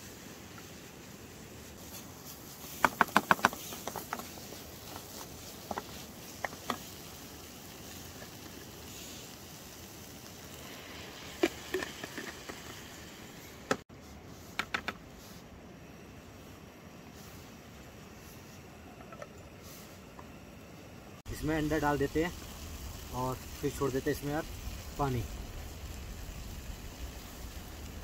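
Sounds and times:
low hiss: 0:00.0 - 0:28.0.

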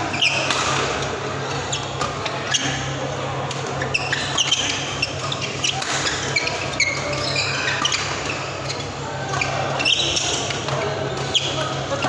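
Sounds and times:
shoe squeaks on court: 0:00.1 - 0:00.7, 0:01.7 - 0:03.0, 0:03.7 - 0:12.0
racket hitting shuttlecock: 0:00.2 - 0:01.1.

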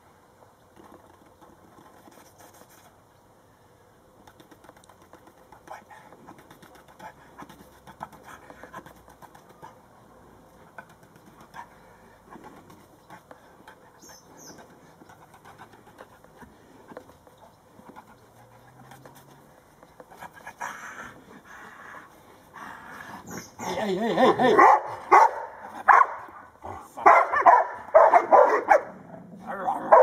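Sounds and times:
dogs barking: 0:23.4 - 0:30.0.

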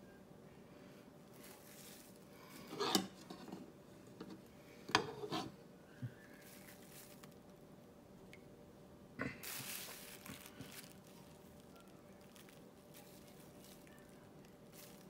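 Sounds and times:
plastic bag crinkling: 0:01.3 - 0:02.5, 0:06.4 - 0:07.7, 0:09.4 - 0:15.0.

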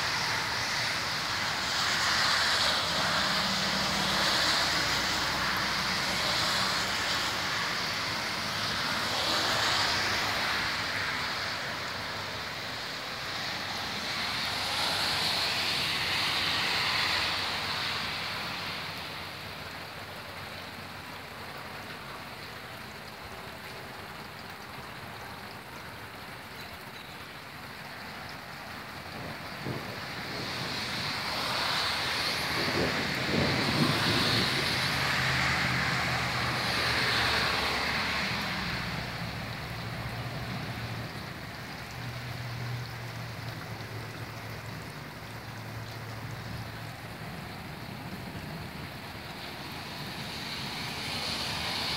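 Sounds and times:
heavy rain rushing: 0:00.0 - 0:51.9
storm wind gusting: 0:29.0 - 0:37.9.

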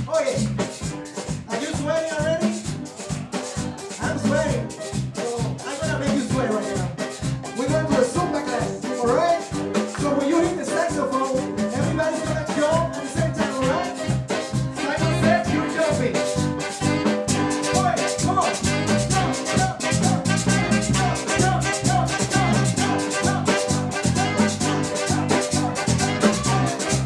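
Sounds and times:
live band playing latin dance music: 0:00.0 - 0:27.0
hand drums: 0:00.2 - 0:27.0
horns: 0:11.6 - 0:27.0.

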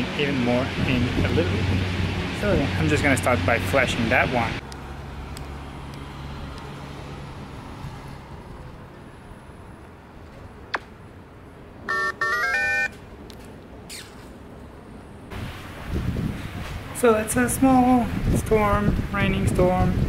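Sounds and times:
electronic game jingle: 0:11.9 - 0:12.9.

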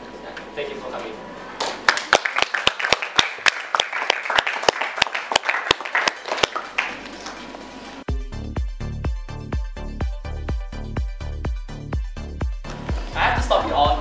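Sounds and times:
audience applauding: 0:01.6 - 0:07.5
electronic dance music: 0:07.6 - 0:14.0.

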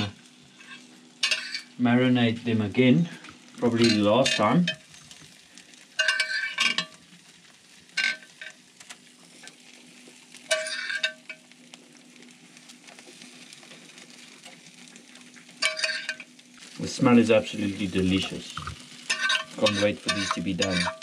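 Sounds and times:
meat sizzling over coals: 0:00.0 - 0:21.0
hissing flare-ups: 0:08.8 - 0:20.8.

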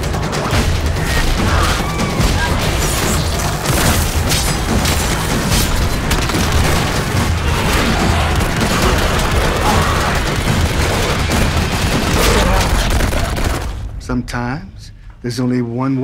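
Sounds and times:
gunshots: 0:00.0 - 0:14.0
dense action score: 0:00.0 - 0:15.3.

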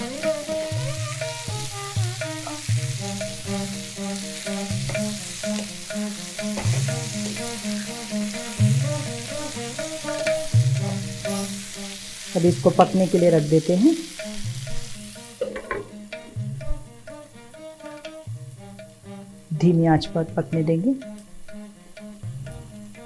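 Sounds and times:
instrumental background music: 0:00.0 - 0:23.0
vegetables sizzling in hot oil: 0:00.0 - 0:23.0
wooden spatula scraping a pan: 0:00.2 - 0:16.7.

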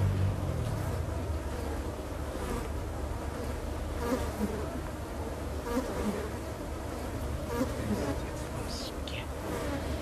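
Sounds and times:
insect swarm buzzing: 0:05.6 - 0:10.0.

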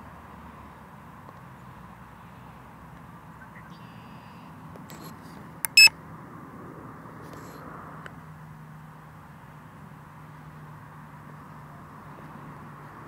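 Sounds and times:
loud electronic beep: 0:05.7 - 0:05.9.

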